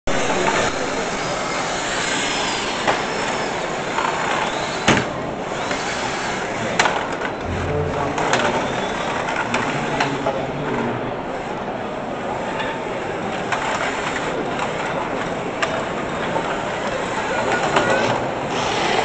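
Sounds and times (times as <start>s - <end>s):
crowd noise: 0.0s - 19.0s
electric motors whining: 0.2s - 10.2s.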